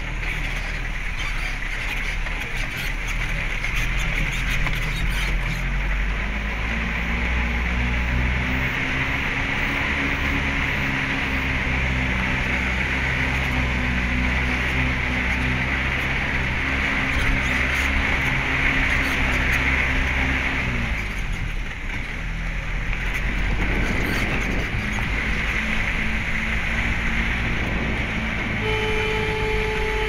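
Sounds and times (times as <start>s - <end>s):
road noise: 0.0s - 30.0s
vehicle engine running: 0.0s - 30.0s
wind noise: 7.1s - 30.0s.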